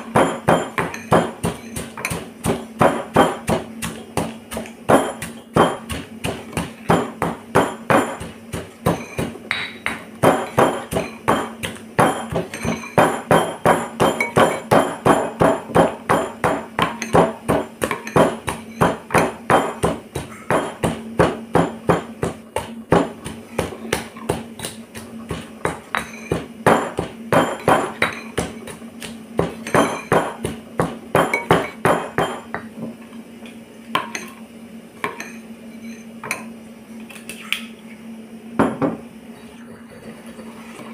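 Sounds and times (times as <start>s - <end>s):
stone pestle pounding in mortar: 0.0s - 32.7s.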